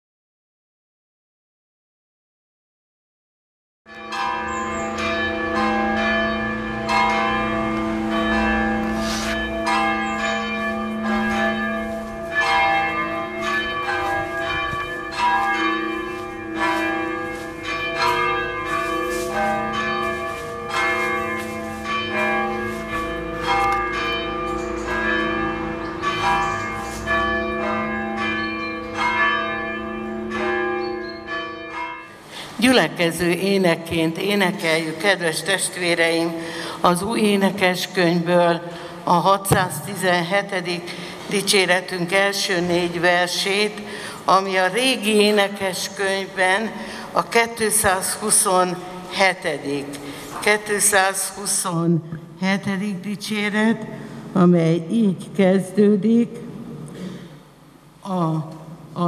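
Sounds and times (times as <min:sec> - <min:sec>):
church bells pealing: 0:03.9 - 0:57.5.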